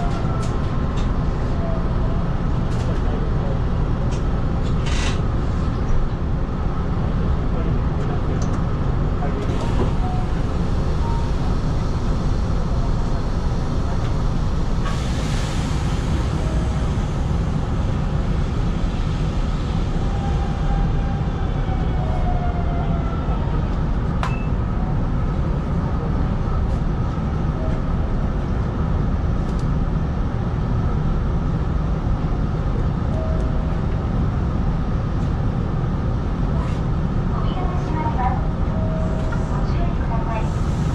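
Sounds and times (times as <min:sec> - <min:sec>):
train cab hum and rumble: 0:00.0 - 0:40.9.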